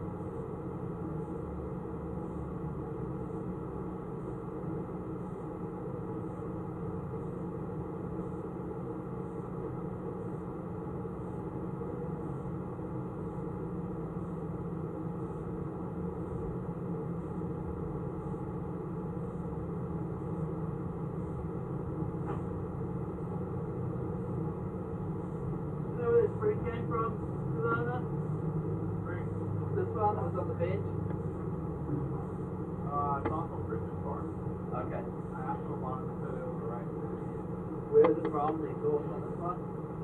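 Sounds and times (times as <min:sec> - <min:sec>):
mechanical hum with held tones: 0:00.0 - 0:40.0.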